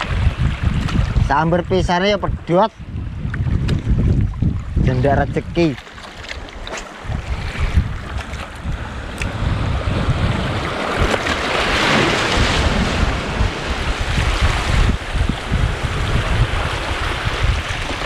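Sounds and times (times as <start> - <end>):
wind buffeting microphone: 0.0 - 18.0
waves washing over rocks: 3.6 - 18.0.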